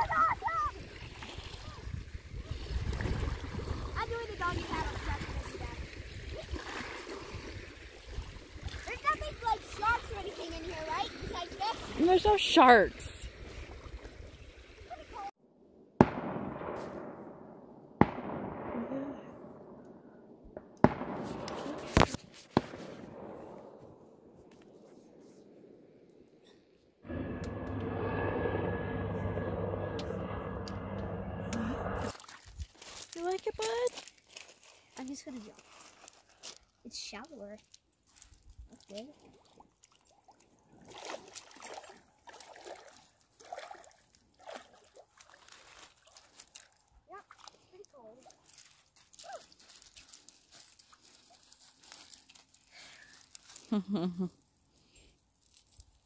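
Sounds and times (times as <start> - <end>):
footsteps sloshing through water: 0.8 - 12.5, 32.0 - 36.9, 37.6 - 53.7
sharp echoing bangs: 16.0 - 19.8, 20.6 - 21.9.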